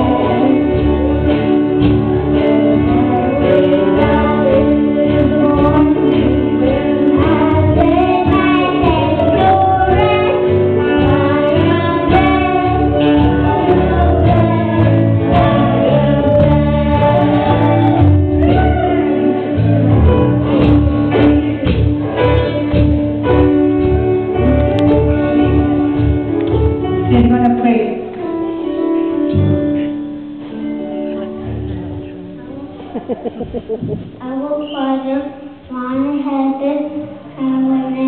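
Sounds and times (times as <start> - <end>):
people singing gospel song: 0.0 - 23.5
amplified guitar and band: 0.0 - 38.0.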